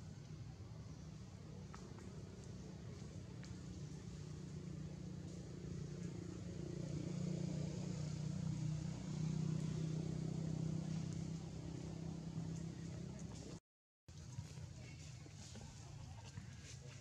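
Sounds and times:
vehicle engine humming: 0.0s - 13.6s.

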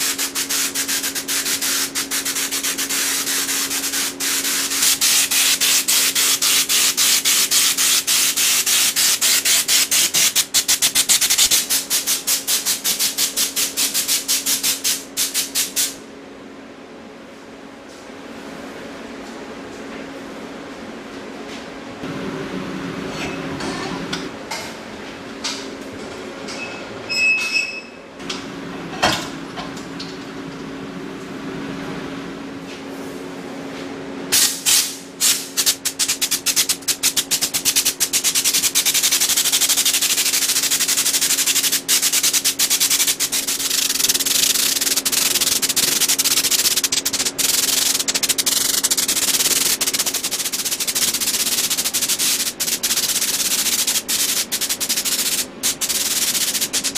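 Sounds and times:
spray gun hissing: 0.0s - 15.9s, 34.4s - 56.9s
steady low hum: 0.0s - 27.1s, 28.0s - 56.9s.

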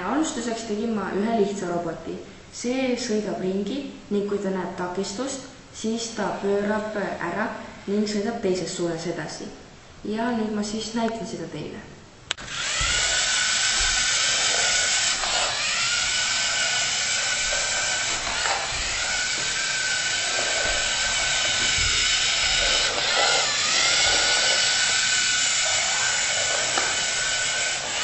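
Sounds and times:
robot electric motors whining: 12.4s - 28.0s.

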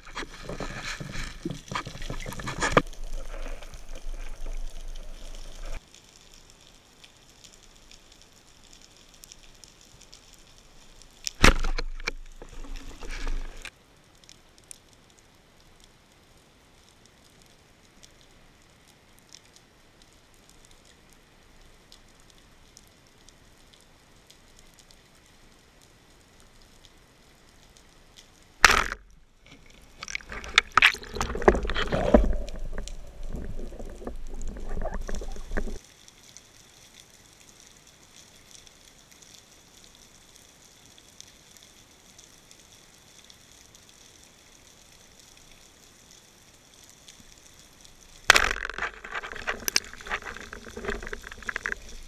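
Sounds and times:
churning water and clatter: 0.0s - 4.5s, 29.6s - 35.8s
faint water hiss: 0.0s - 52.0s
speargun shot underwater: 11.4s - 13.7s, 28.6s - 29.1s, 48.3s - 52.0s.

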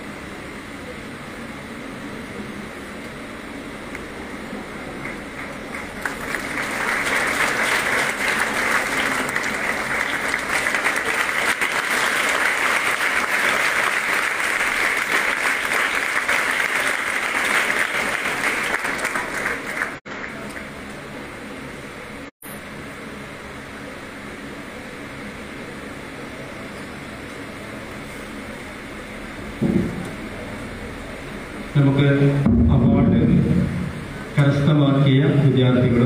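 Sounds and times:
audience applauding: 4.8s - 20.8s.

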